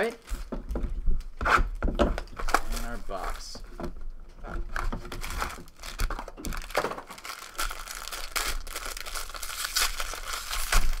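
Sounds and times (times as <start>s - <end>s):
foil wrapper crinkling and tearing: 2.3s - 3.6s, 4.5s - 11.0s.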